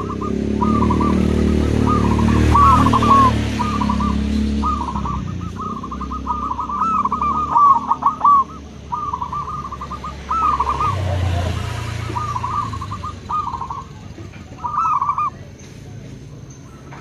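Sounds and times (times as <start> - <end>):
dove cooing: 0.0 - 15.6.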